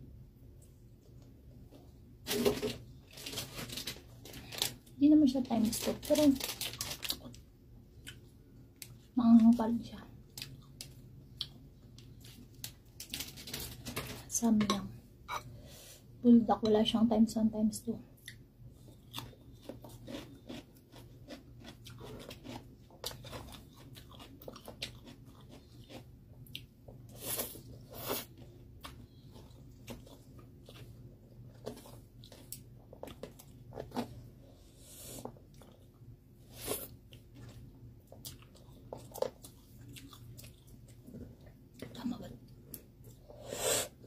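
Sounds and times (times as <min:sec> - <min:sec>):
person chewing and crunching food: 0:10.2 - 0:13.8, 0:18.2 - 0:43.6.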